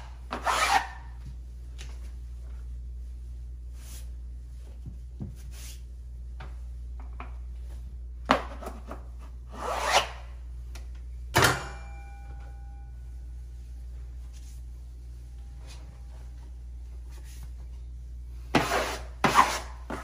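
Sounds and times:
steady low hum: 0.0s - 20.0s
sharp ringing knock: 11.4s - 12.8s
scrape on wallpaper: 18.6s - 20.0s.

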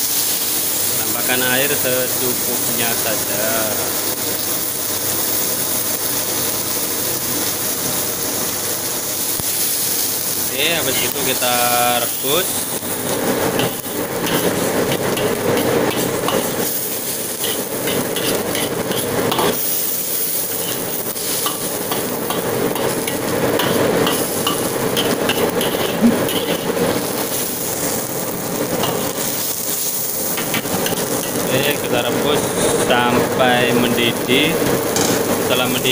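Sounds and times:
sauce bubbling and sizzling: 0.0s - 35.9s
stove blower noise: 0.0s - 35.9s
metal ladle scraping wok: 13.4s - 26.9s.

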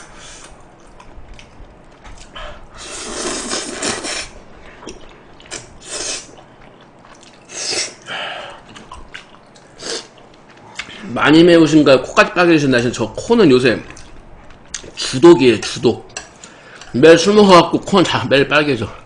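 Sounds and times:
person slurping noodles: 2.8s - 4.4s, 5.5s - 6.5s, 7.4s - 8.1s, 9.7s - 10.2s
wet chewing: 3.1s - 11.0s, 13.8s - 15.0s.

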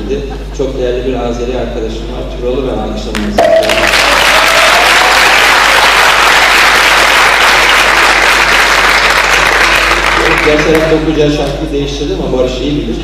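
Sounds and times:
crowd applauding: 3.4s - 11.0s.

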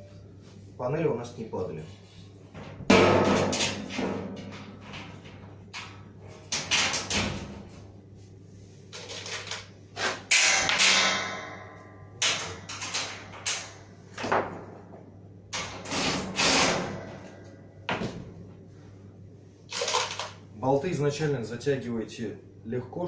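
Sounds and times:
sheet metal panels clanking: 2.6s - 7.8s, 10.2s - 14.7s.

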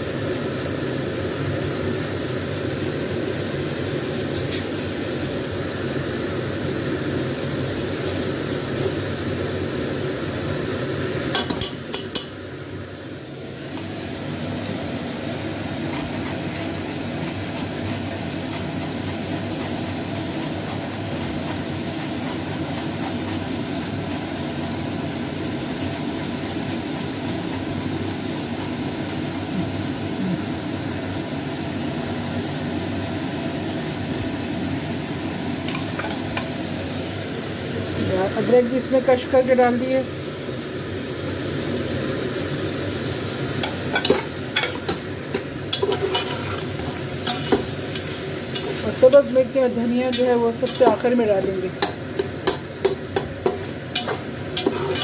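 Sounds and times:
food sizzling in a pot: 0.0s - 55.0s
steady background hum: 0.0s - 55.0s
ginger scraped on metal grater: 15.9s - 24.7s, 25.6s - 29.6s, 53.9s - 55.0s
spoon stirring: 45.7s - 49.4s, 50.1s - 51.2s, 51.8s - 55.0s.

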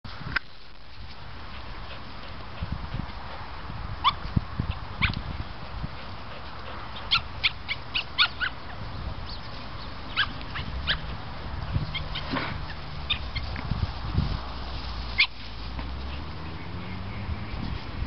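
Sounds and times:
dog whining and yipping: 7.0s - 8.7s, 10.1s - 11.1s, 11.8s - 13.5s.

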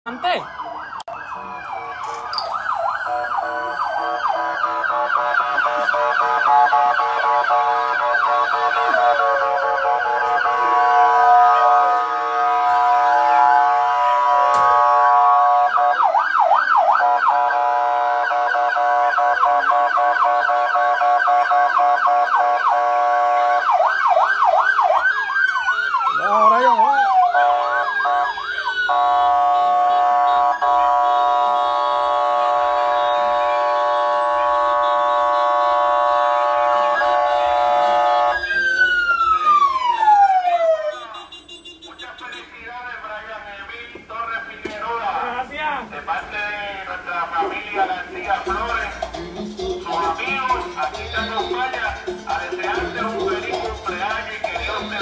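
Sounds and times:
steady multi-note siren tone: 0.1s - 7.2s, 23.4s - 41.1s
falling siren wail: 0.1s - 41.1s
electronic yelp siren: 0.1s - 42.2s.

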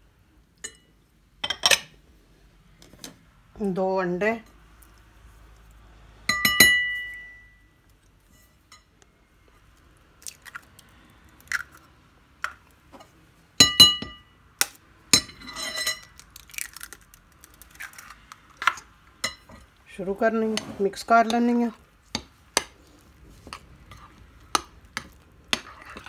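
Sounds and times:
eggshell crackling: 10.1s - 12.7s, 16.0s - 18.8s.

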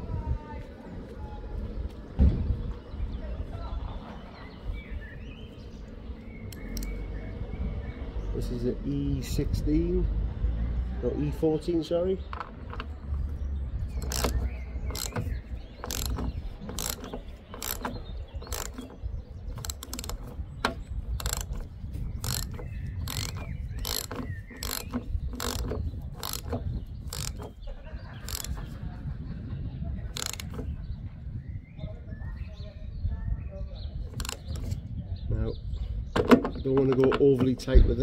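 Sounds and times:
socket ratchet clicking: 6.4s - 7.0s, 13.9s - 27.6s, 28.2s - 28.6s, 30.2s - 30.7s, 34.1s - 34.8s.

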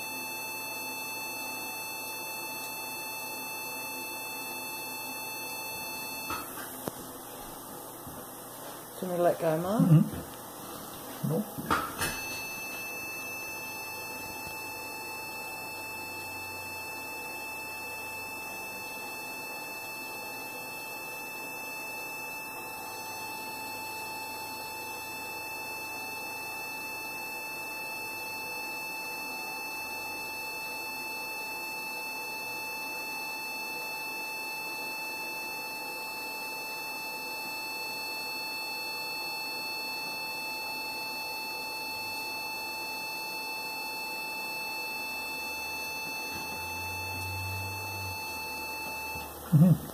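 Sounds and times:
steady electronic tone: 12.0s - 28.2s, 41.0s - 49.8s.

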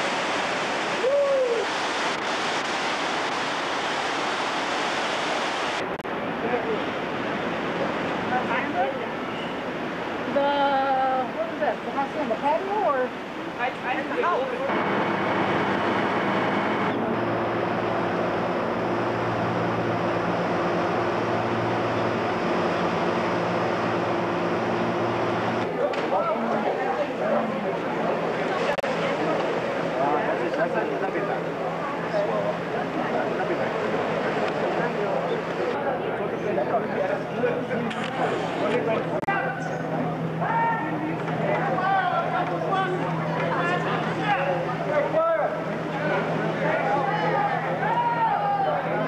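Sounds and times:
loud rushing noise: 0.0s - 6.4s
steady rushing noise: 0.0s - 10.4s, 11.4s - 26.4s
steady motor hum: 14.2s - 25.7s.

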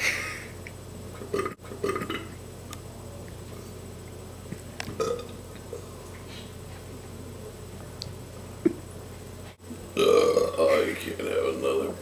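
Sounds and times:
low electrical hum: 0.0s - 12.0s
man burping: 1.3s - 2.4s, 5.0s - 5.3s, 10.0s - 10.8s.

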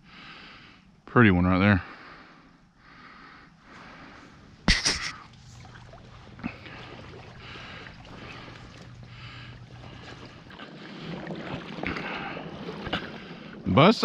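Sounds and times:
person wading through water: 3.7s - 14.0s.

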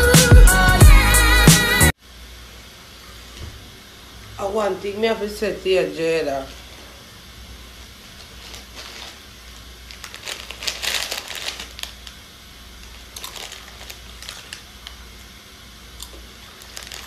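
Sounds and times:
plastic snack wrapper crinkling: 8.2s - 15.2s, 15.9s - 17.0s.

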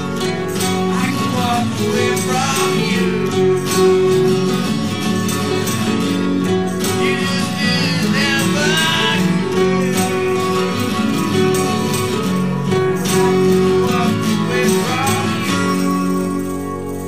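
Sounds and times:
plucked guitar music: 0.0s - 17.0s.

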